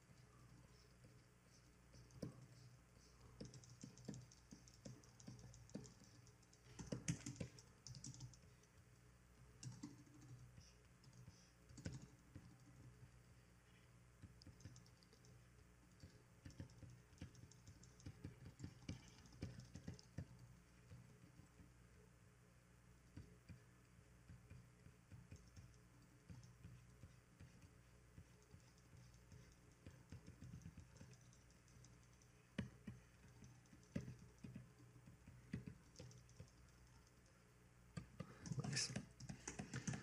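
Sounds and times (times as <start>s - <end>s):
computer keyboard taps: 3.4s - 8.4s, 15.9s - 21.6s, 24.3s - 37.2s, 38.0s - 40.0s.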